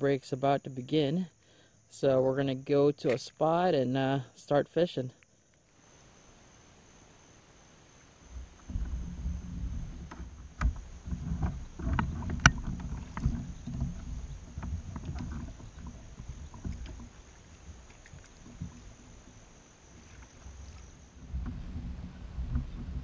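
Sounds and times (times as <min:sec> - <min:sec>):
thumps against plastic kayak hull: 0:08.6 - 0:18.9.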